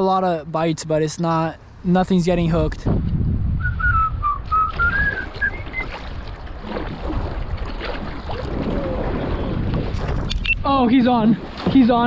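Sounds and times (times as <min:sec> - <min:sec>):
wind buffeting microphone: 0:01.6 - 0:12.0
person whistling: 0:03.6 - 0:05.9
paddle splashing in water: 0:04.5 - 0:10.5, 0:11.3 - 0:12.0.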